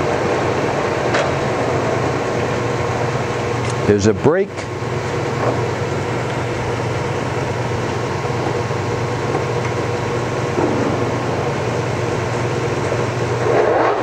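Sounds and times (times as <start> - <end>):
lathe drive humming: 0.0 - 14.0.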